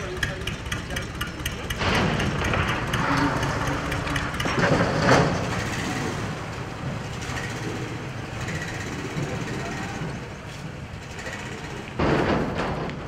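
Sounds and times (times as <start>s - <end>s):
boat engine rumbling: 0.0s - 13.0s.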